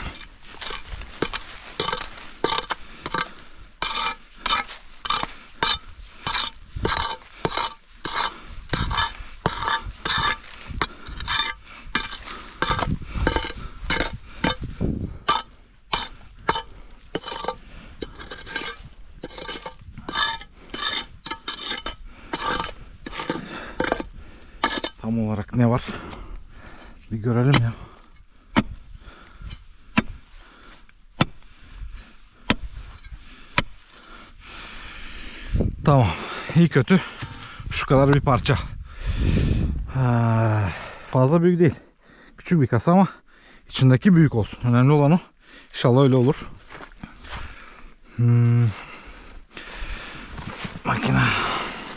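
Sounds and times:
hand tool scraping stone: 0.0s - 26.3s, 27.0s - 34.1s, 36.6s - 38.4s.

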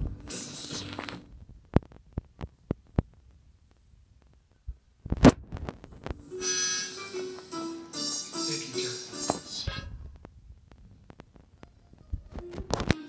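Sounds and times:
music: 0.0s - 1.2s, 6.2s - 9.9s, 11.7s - 13.0s.

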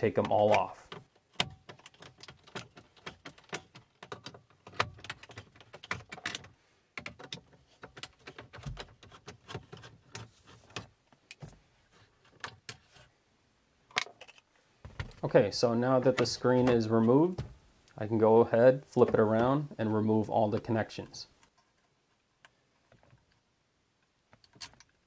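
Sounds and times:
plastic screen surround handled: 13.9s - 17.6s.

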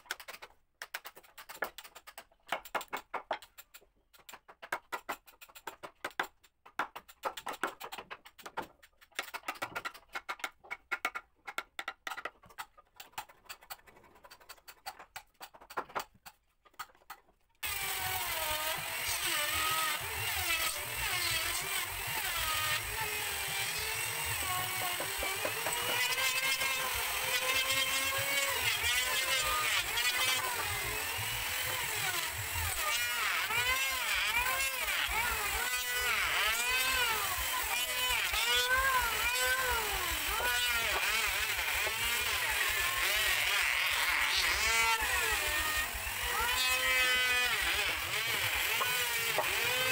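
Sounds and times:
hammer tapping steel chisel: 0.0s - 17.2s.

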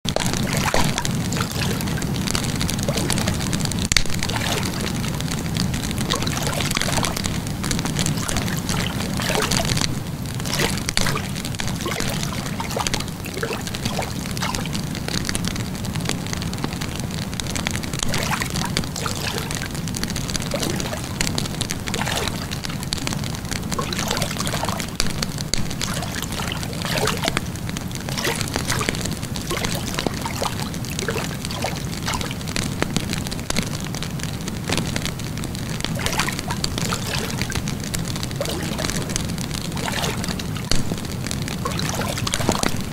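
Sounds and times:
wood fire crackling and popping: 0.1s - 42.9s.

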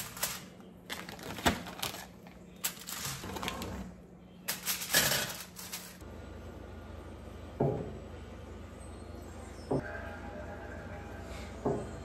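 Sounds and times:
foil crinkling: 0.0s - 3.7s, 4.5s - 6.0s.

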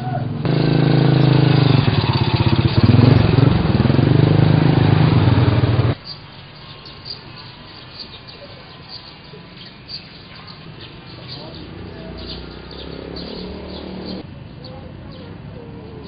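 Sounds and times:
small motorcycles riding past: 0.0s - 16.0s
faint high chirping: 6.0s - 16.0s.

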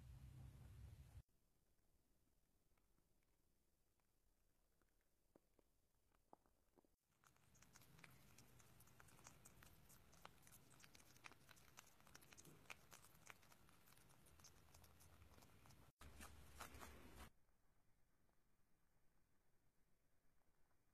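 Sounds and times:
rabbit chewing greens crunching: 6.2s - 17.3s.

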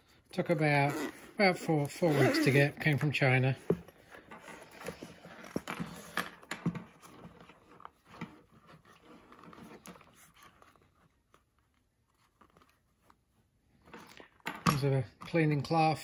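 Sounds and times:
fabric case rustling: 0.0s - 14.4s.

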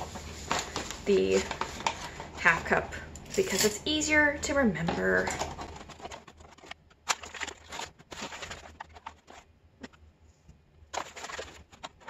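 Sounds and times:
paper bag rustling: 0.0s - 2.6s, 5.2s - 10.0s, 10.9s - 12.0s.

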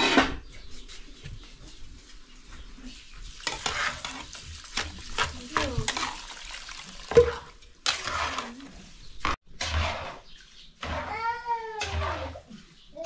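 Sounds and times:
water pouring into metal pot: 3.2s - 8.6s
spoon stirring and knocking pot: 7.0s - 12.4s.

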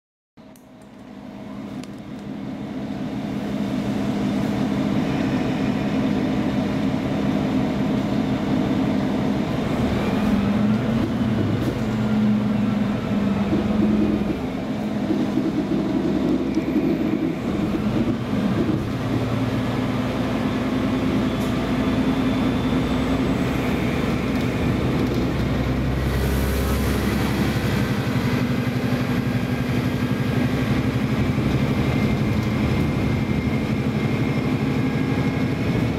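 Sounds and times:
deep rumble: 22.2s - 35.9s.

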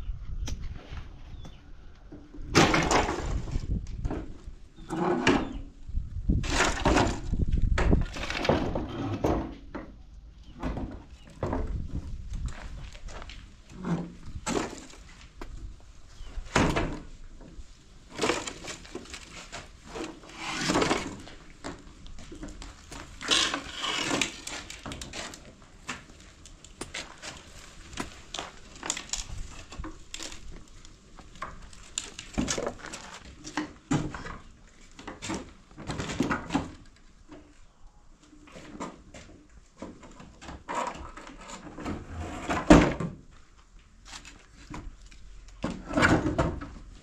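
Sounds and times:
wooden branches knocking and cracking: 2.4s - 5.6s, 6.2s - 9.9s, 14.0s - 15.6s, 16.4s - 37.5s
branches rustling: 17.5s - 33.7s.

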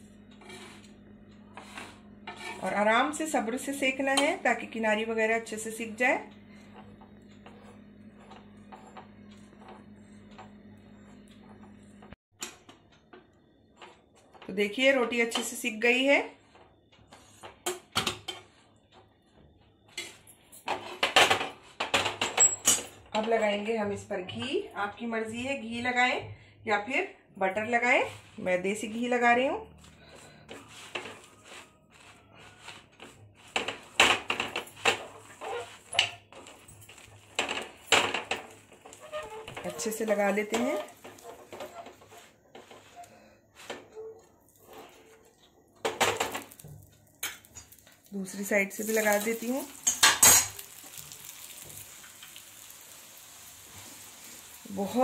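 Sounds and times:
metal spoon scraping a griddle: 0.3s - 4.4s, 29.8s - 45.3s, 48.8s - 52.7s
flatbread crackling over flame: 28.0s - 55.0s.

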